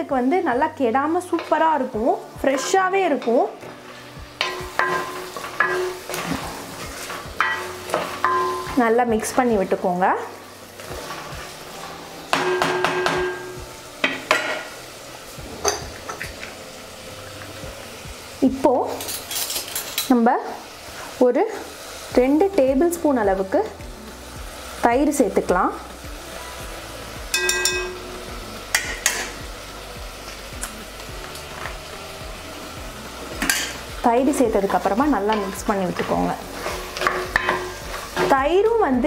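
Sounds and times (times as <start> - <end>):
food sizzling softly: 0.0 - 39.0
wooden spatula stirring food: 2.4 - 8.9
steel spoon clinking on pot: 7.4 - 8.7, 27.4 - 28.0.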